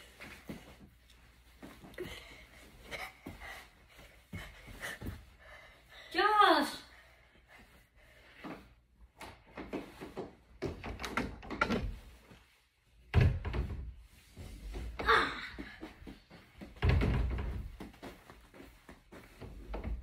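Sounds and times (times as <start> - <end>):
knocks and thumps on mattress: 13.1 - 20.0.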